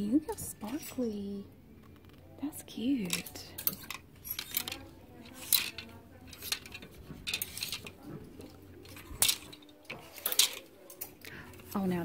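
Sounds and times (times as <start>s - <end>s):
plastic hangers clicking on metal rail: 3.1s - 11.8s.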